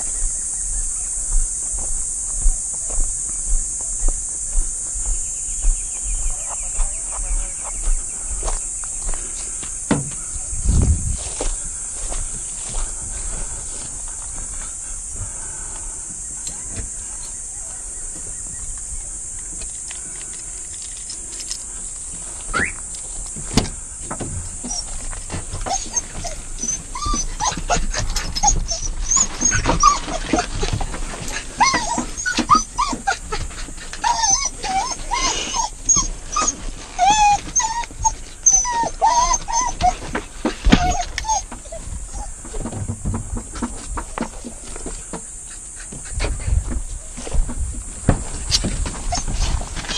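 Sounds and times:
dogs yelping: 24.0 - 42.8, 48.2 - 49.9.

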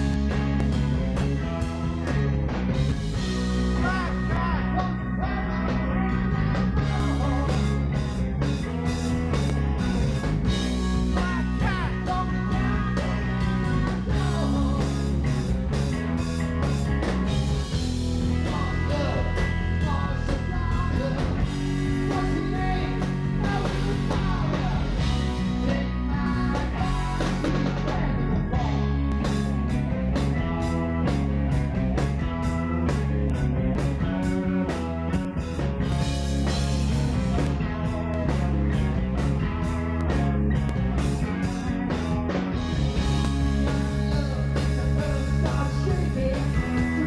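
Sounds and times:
drum kit: 0.0 - 47.0
electric guitars: 0.0 - 47.0
person singing: 3.7 - 9.4, 10.9 - 15.4, 18.3 - 29.4, 37.0 - 40.3, 41.3 - 47.0.

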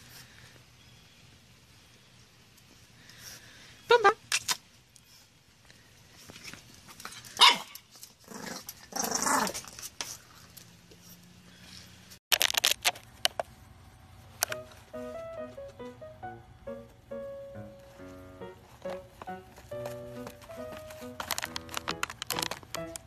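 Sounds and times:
puppy barking: 7.4 - 7.8
puppy bark-growl: 7.4 - 9.6.

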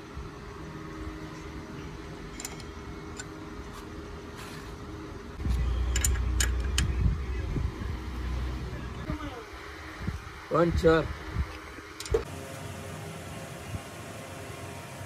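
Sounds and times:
engine humming: 0.0 - 15.0
loud low rumble: 5.4 - 9.1
sharp metallic clicks: 5.8 - 7.0.

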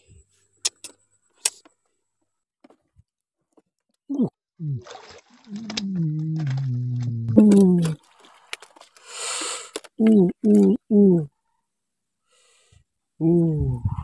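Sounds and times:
person's falling voice sounds: 5.5 - 8.0, 10.0 - 11.3, 13.2 - 14.0.

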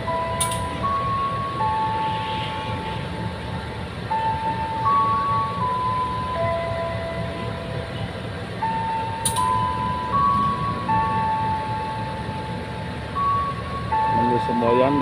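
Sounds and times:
locomotive rumbling past: 0.0 - 15.0
sharp click: 0.4 - 0.7, 9.2 - 9.5
slow electronic tune: 8.6 - 15.0.

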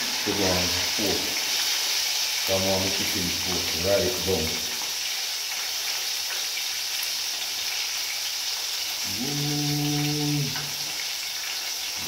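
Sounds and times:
oil sizzling in frying pan: 0.0 - 12.0
man humming: 9.0 - 10.9.

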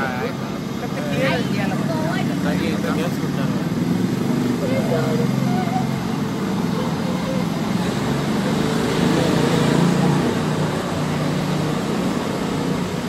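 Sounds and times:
large vehicle engine droning: 0.0 - 13.0.

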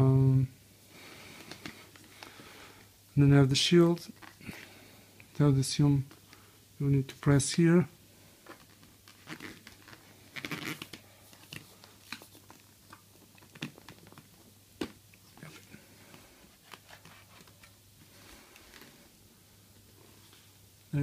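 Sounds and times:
handling rustle: 8.4 - 19.1.

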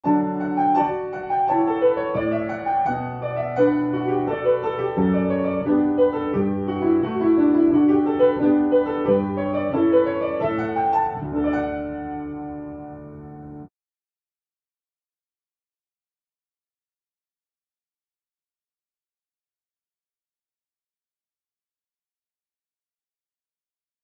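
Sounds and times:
solo piano melody: 0.0 - 13.7.

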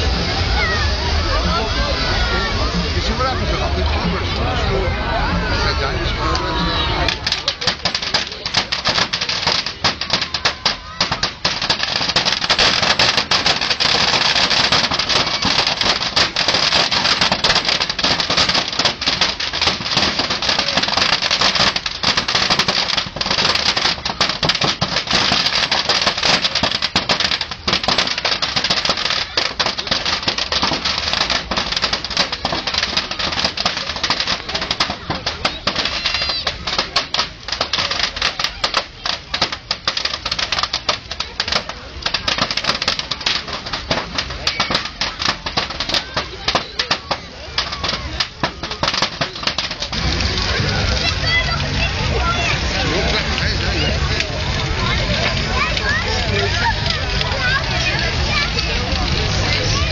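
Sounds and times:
bonfire crackling: 0.0 - 59.9
steady rushing noise: 0.0 - 59.9.

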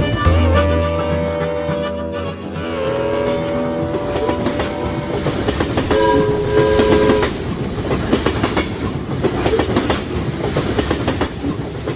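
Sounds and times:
train whistle blasts: 0.0 - 7.4
train wheels clickety-clack: 2.6 - 11.9.

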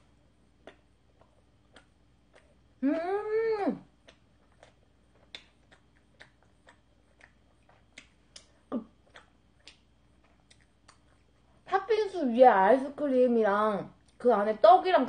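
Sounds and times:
wet mouth clicks and lip smacks: 0.6 - 2.6, 4.0 - 11.4
person humming: 2.8 - 3.8.

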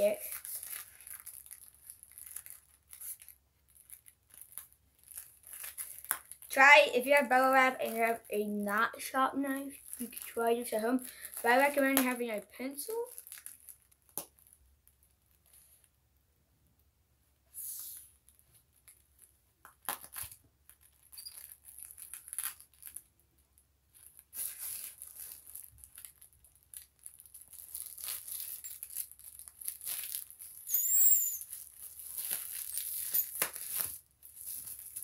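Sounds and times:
bubble wrap crinkling: 0.0 - 15.9, 17.8 - 35.0
high squeaks: 30.6 - 31.6, 32.6 - 33.4.

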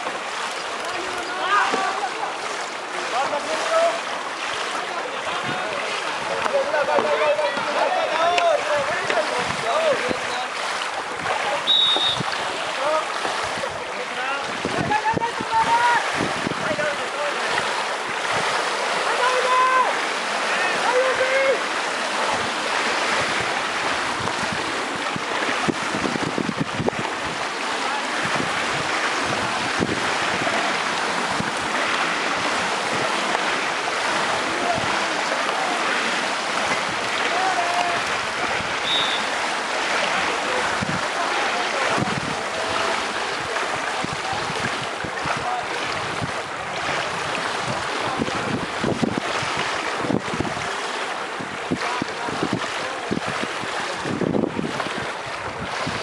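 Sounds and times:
kayak paddles splashing: 0.0 - 56.0
wind on microphone: 8.7 - 18.8, 22.0 - 35.2, 37.8 - 56.0.

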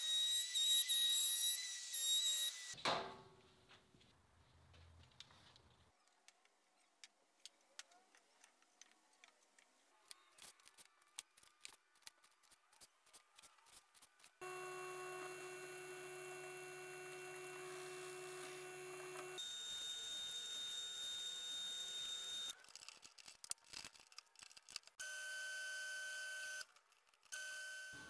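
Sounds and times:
drill press motor whining: 14.4 - 22.5.

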